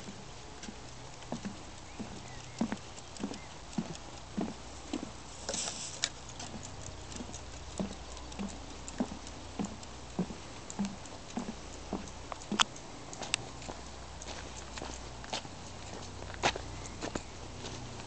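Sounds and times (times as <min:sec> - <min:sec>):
footsteps on wooden boardwalk: 0:00.0 - 0:18.0
brief rustle: 0:05.4 - 0:06.2.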